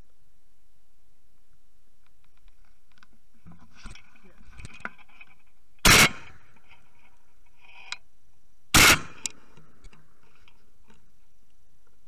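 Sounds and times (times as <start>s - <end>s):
loud shotgun shots: 5.8s - 6.4s, 8.7s - 9.3s.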